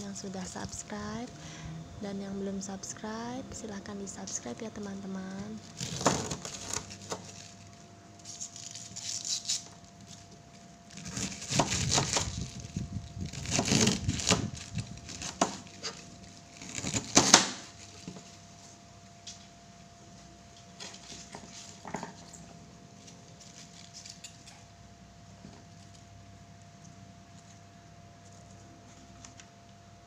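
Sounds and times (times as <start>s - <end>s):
knife cutting cabbage: 5.8s - 7.4s, 10.9s - 12.6s, 13.2s - 17.8s.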